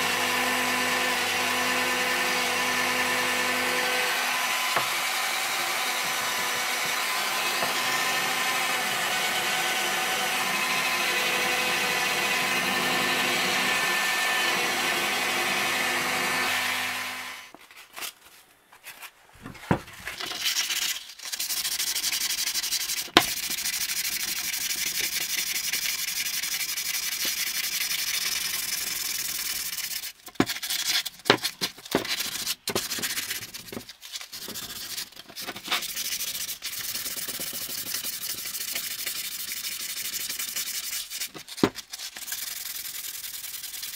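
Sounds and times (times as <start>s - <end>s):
rotary tool grinding metal: 0.0s - 17.5s
sandpaper scraping on metal: 20.1s - 31.1s, 31.9s - 43.9s.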